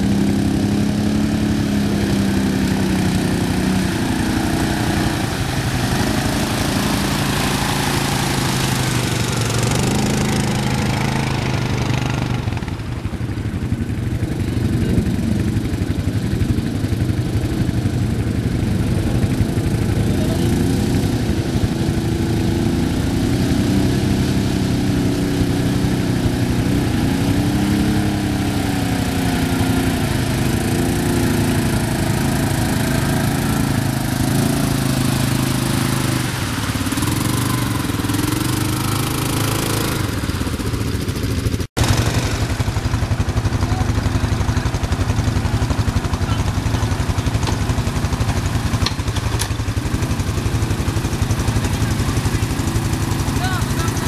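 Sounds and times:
quad bike engine revving: 0:00.0 - 0:54.0.

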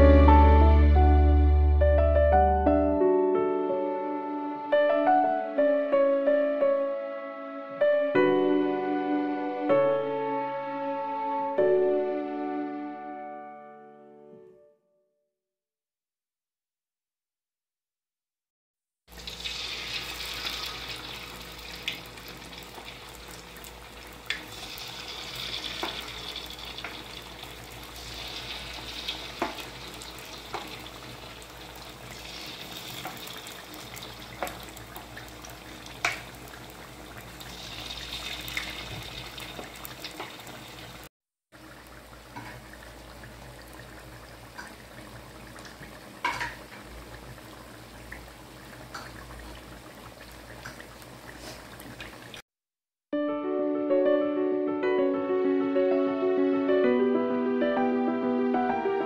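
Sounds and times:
deep-frying sizzle: 0:19.1 - 0:52.4
oil popping: 0:31.8 - 0:41.0.

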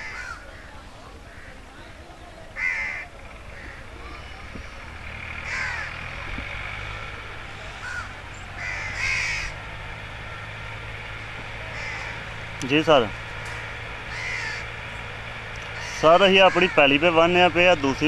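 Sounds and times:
crows cawing: 0:00.0 - 0:01.7, 0:02.5 - 0:18.0.

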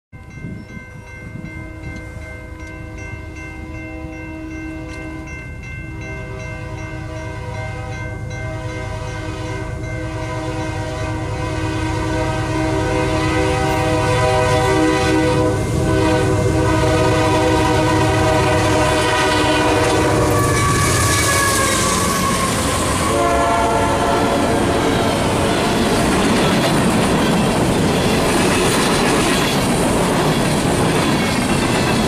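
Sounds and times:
locomotive horn: 0:06.0 - 0:26.0
train wheels clattering: 0:24.4 - 0:32.0.

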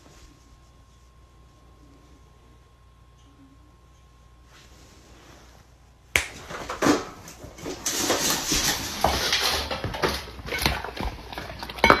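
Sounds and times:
metal bowls clinking: 0:07.0 - 0:12.0
dogs eating: 0:07.3 - 0:12.0.

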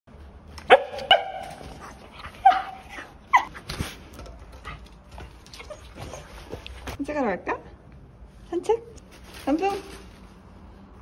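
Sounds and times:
dog yelping: 0:00.7 - 0:03.7.

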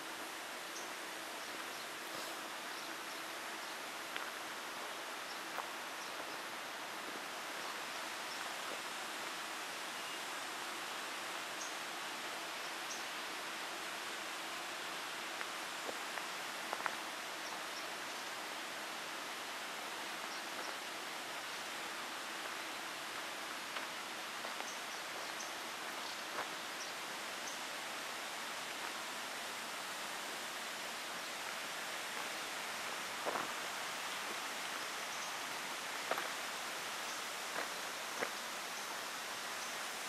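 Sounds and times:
stream water flowing: 0:00.0 - 0:40.0.

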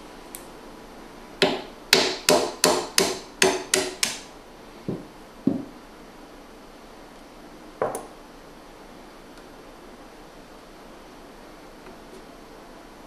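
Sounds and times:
hammer tapping metal punch: 0:01.4 - 0:04.3.

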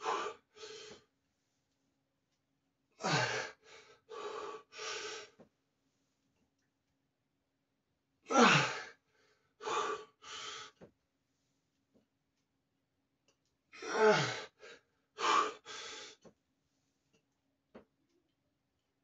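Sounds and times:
man panting hard: 0:00.0 - 0:01.0, 0:03.0 - 0:05.4, 0:08.3 - 0:09.0, 0:09.6 - 0:10.8, 0:13.8 - 0:16.2
man grunting with effort: 0:08.3 - 0:08.8, 0:13.8 - 0:14.4.

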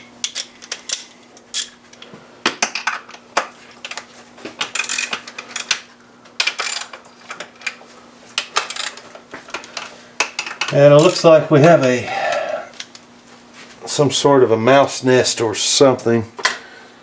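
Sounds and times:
ratchet wrench clicking: 0:04.7 - 0:05.7, 0:06.4 - 0:06.9, 0:08.7 - 0:09.0.

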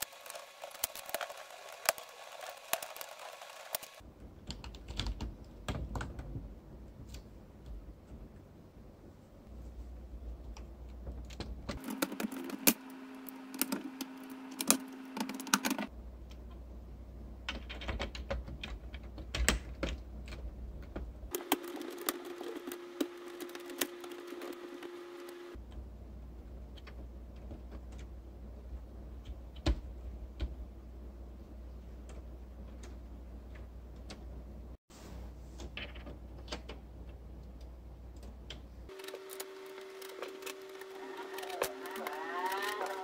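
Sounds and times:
plastic parts clicking and snapping: 0:10.5 - 0:16.6, 0:17.4 - 0:24.8, 0:35.6 - 0:43.0.

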